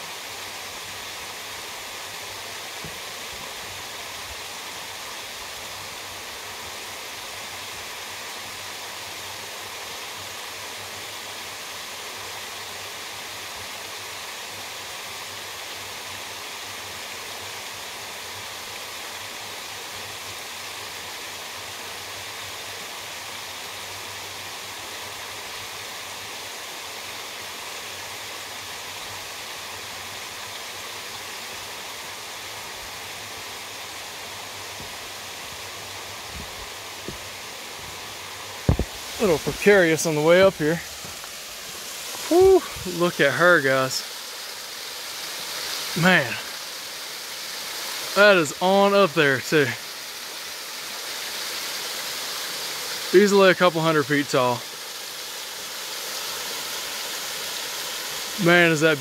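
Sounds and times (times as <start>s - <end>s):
waterfall roaring: 30.3s - 59.0s.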